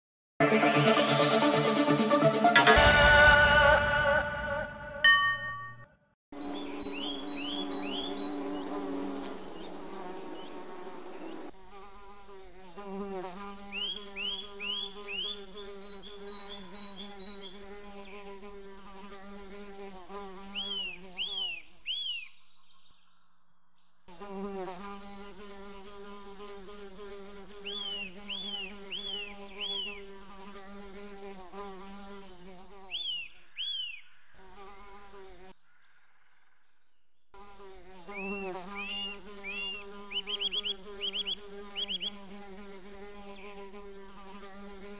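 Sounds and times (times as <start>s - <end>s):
flying insect buzzing: 6.4s - 23.0s, 24.0s - 35.6s, 37.4s - 44.9s
short bird chirps: 32.9s - 34.4s, 38.2s - 42.2s.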